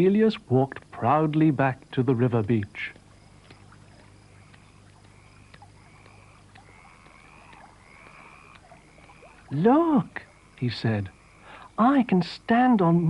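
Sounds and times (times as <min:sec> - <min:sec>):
low hum: 0:00.0 - 0:13.0
tape hiss: 0:00.0 - 0:13.0
soft clicks: 0:02.9 - 0:09.2.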